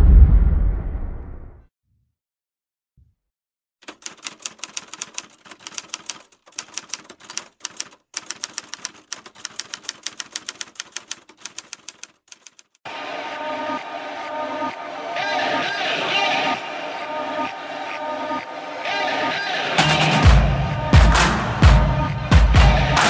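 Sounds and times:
typewriter key clacks: 0:03.8 - 0:12.7.

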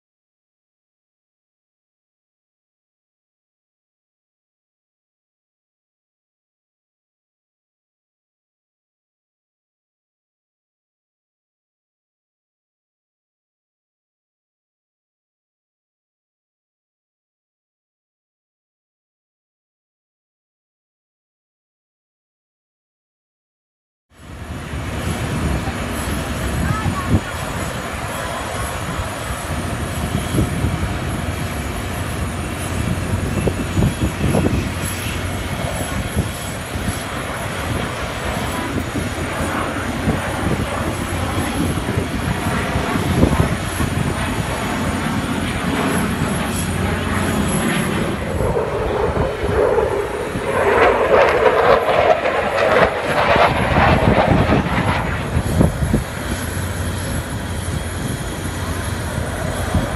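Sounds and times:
fighter jet engine rumbling: 0:24.2 - 0:59.9.

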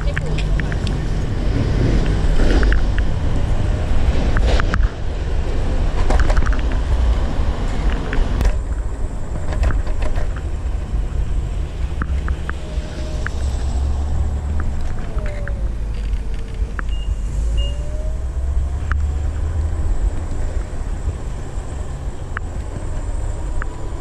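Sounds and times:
wheels rolling on road: 0:00.0 - 0:24.0
wind on microphone: 0:00.0 - 0:24.0
scooter clicks and knocks over bumps: 0:05.9 - 0:06.9, 0:07.7 - 0:10.6.

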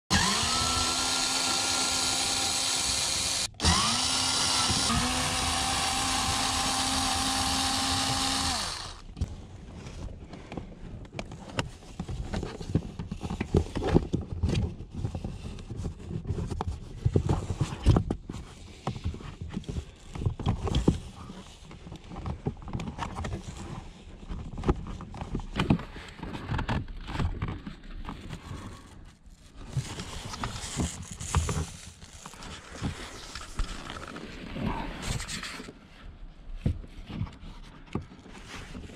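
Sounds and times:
electric screwdriver whining: 0:00.1 - 0:09.1.

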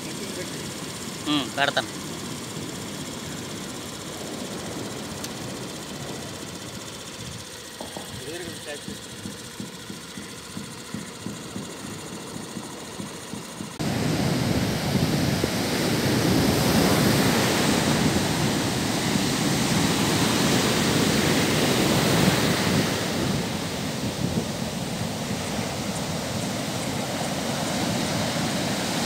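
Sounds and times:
wind blowing on microphone: 0:13.8 - 0:28.7
surf breaking on shore: 0:13.8 - 0:29.0.

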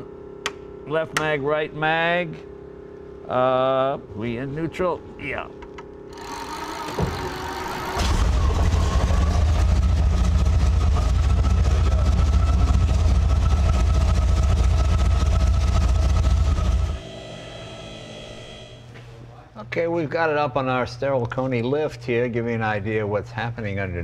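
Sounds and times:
aero engine running: 0:04.2 - 0:19.5.

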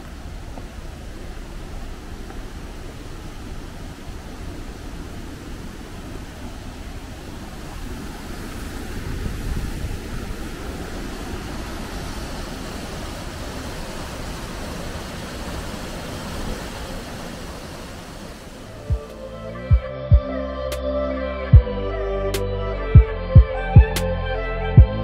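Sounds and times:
river rushing over waterfalls: 0:00.0 - 0:19.9.

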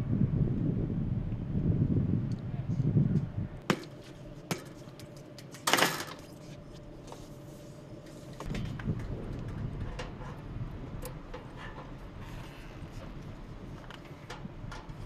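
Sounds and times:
metal clattering scrape: 0:11.2 - 0:13.2.

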